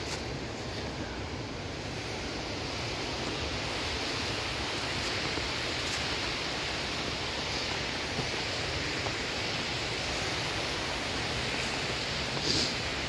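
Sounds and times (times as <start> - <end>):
mountain stream rushing: 0.0 - 13.0.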